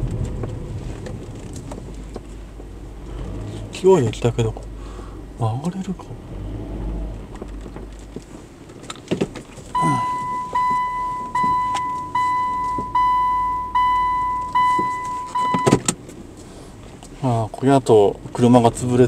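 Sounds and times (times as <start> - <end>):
low engine and cabin rumble: 0.0 - 19.0
car reverse warning chime beeping: 9.7 - 16.0.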